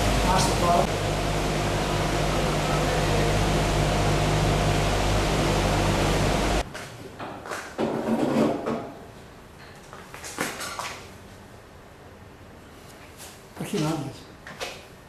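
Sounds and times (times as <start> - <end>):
low hum: 0.0 - 6.6.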